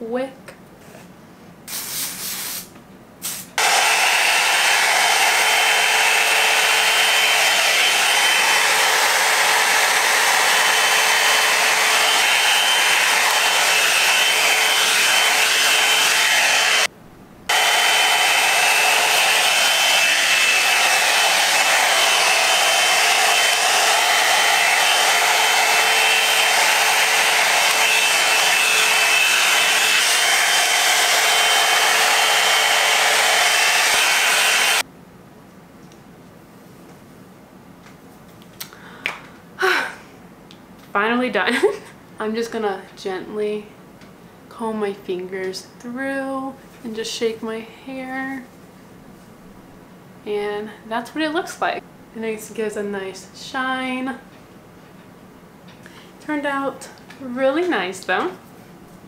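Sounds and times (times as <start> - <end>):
blow-dryer brush whirring: 3.6 - 16.9, 17.5 - 34.8.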